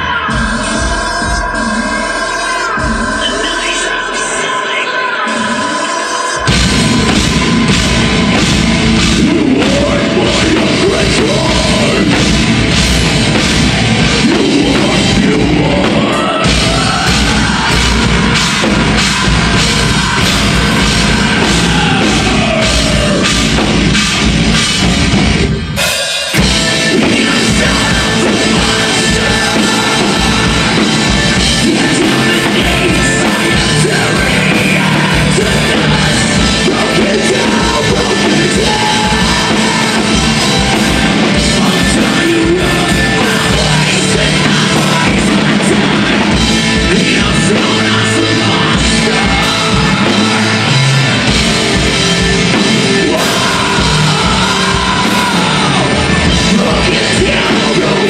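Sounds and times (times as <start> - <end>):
death metal band playing live: 0.0 - 58.0.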